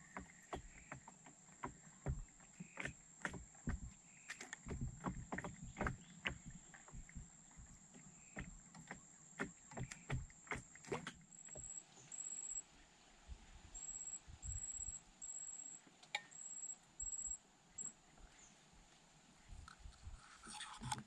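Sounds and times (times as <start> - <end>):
water lapping against boat hull: 0.0 - 11.7
faint high-pitched whine: 11.4 - 21.0.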